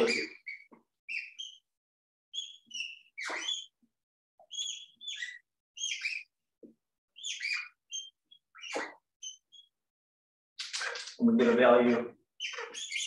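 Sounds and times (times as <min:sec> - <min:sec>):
marker squeaking on glass: 0:00.0 - 0:01.7, 0:02.3 - 0:03.8, 0:04.4 - 0:06.3, 0:07.2 - 0:09.7, 0:10.6 - 0:11.2, 0:12.4 - 0:13.0.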